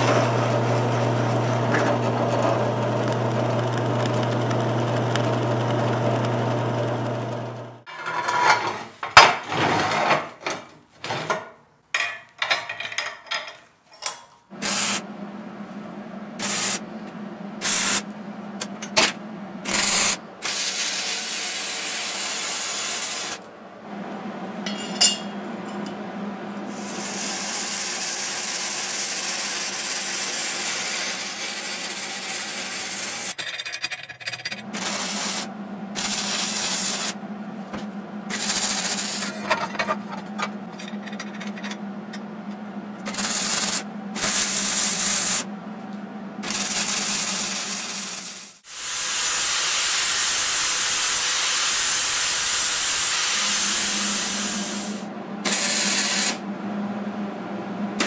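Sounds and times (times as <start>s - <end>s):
low hum: 14.9s - 20.4s, 23.4s - 26.9s, 34.7s - 44.6s, 53.7s - 58.0s
welding arc crackling: 19.7s - 23.5s, 34.7s - 37.2s, 38.3s - 39.4s, 43.0s - 45.4s, 46.4s - 56.4s.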